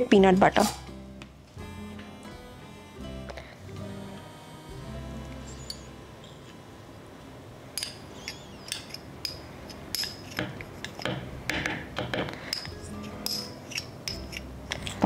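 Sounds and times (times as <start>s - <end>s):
metal spoon scraping a jar: 0.5s - 0.9s, 5.4s - 6.4s, 7.8s - 9.0s, 12.5s - 15.0s.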